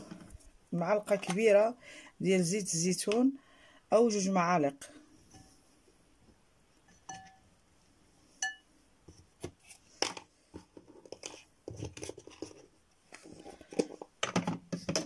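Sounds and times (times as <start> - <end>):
cup clinking against glass bowl: 7.0 - 7.4, 8.4 - 8.6
containers knocking on plastic tray: 13.7 - 15.0.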